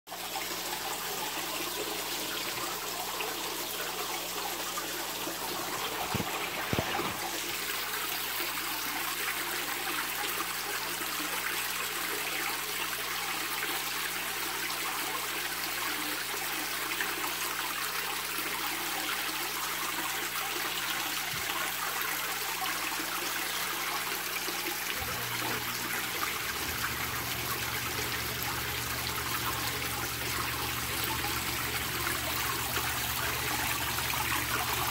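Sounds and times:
fountain water splashing: 22.4 - 34.9.

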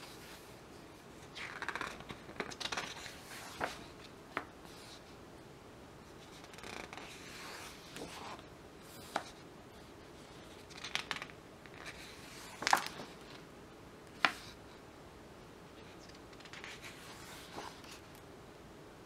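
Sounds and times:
book pages turning: 1.2 - 5.1, 6.2 - 9.4, 10.2 - 13.4, 15.8 - 18.0.

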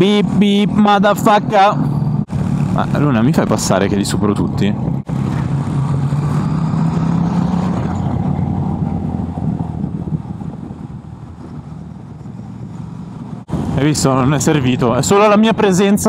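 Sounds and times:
wind noise: 4.1 - 15.1.

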